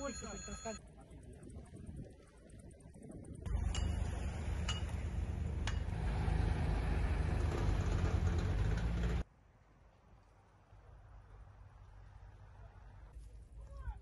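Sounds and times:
truck engine running: 0:03.5 - 0:09.2.

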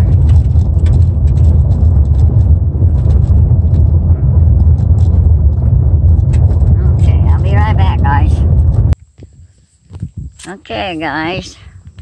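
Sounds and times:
loose stones clicking: 0:00.0 - 0:06.7
low tyre rumble: 0:00.0 - 0:10.4.

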